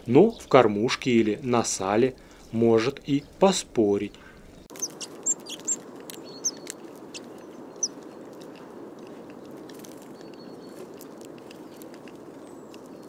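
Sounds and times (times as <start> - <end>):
low background noise: 0.0 - 13.0
bird chirps: 4.6 - 8.0, 10.1 - 13.0.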